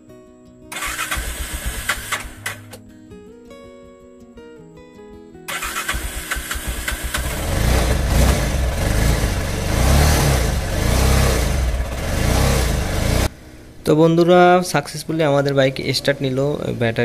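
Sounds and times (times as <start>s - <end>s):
motorcycle engine revving: 0.7s - 2.8s, 5.5s - 13.3s
motorcycle engine starting: 0.7s - 2.8s, 5.5s - 13.3s.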